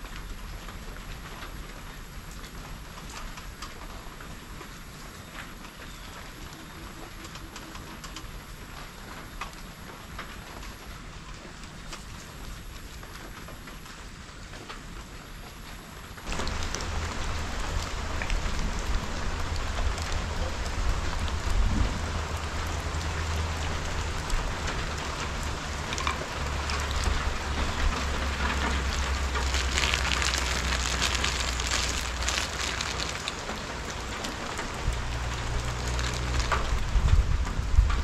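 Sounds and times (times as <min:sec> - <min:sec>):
heavy rain falling: 0:00.0 - 0:38.0.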